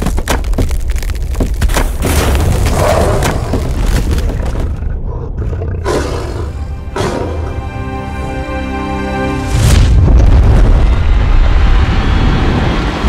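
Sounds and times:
deep booming rumble: 9.6s - 13.0s.

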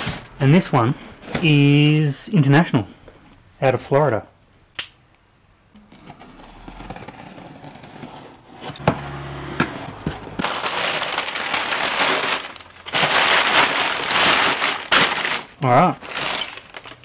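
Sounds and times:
packaging crinkling: 9.9s - 17.0s.

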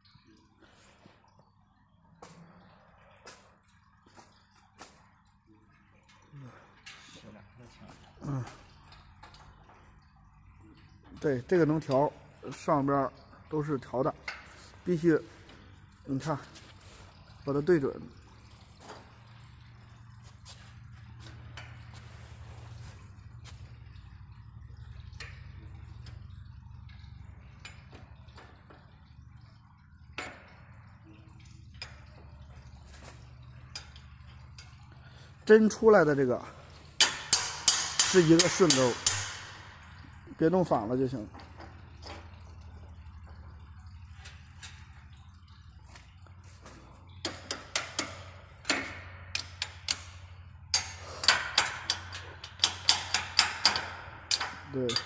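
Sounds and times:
steady low hum: 0.0s - 55.0s
sharp metal clicks and taps: 25.1s - 28.9s, 36.9s - 40.2s, 47.2s - 55.0s.

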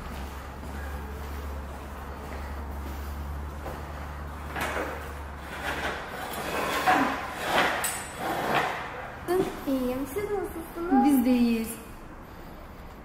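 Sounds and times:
chairs dragged across tiled floor: 2.4s - 10.1s.

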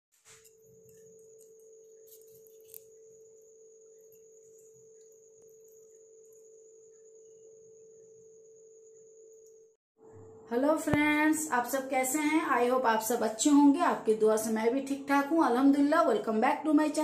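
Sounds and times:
steady pure tone: 0.2s - 12.1s
thin high whine: 0.2s - 13.7s.

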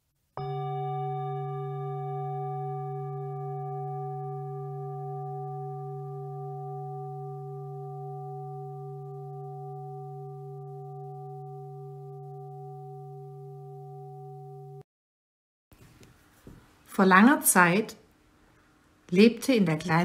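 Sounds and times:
struck metal bell tone ringing: 0.4s - 14.8s.

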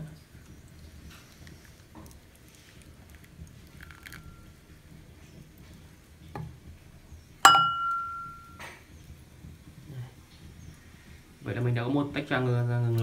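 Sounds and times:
ceramic bowl clinking: 3.8s - 4.5s, 7.4s - 8.6s.

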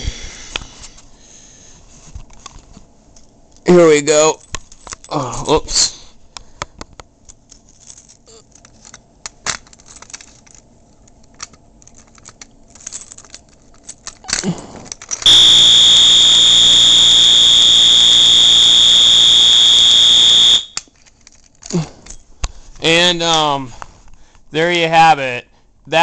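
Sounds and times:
keys jangling: 7.4s - 15.3s
high-pitched alarm horn: 15.3s - 20.8s.

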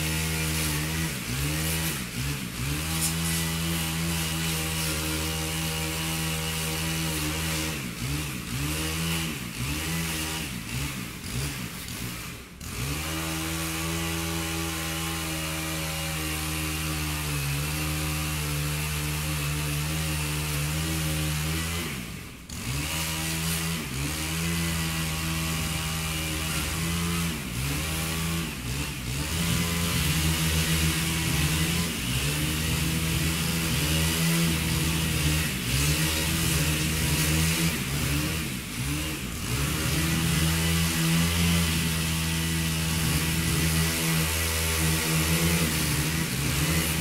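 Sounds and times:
chainsaw running: 0.0s - 47.0s.

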